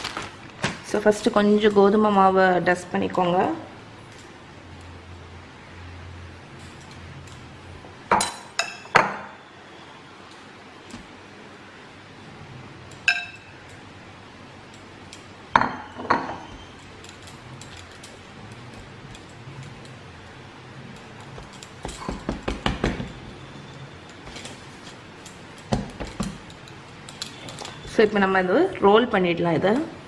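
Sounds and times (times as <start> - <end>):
bowl clinking on counter: 13.1 - 13.5
knocks and taps on counter: 21.8 - 23.1.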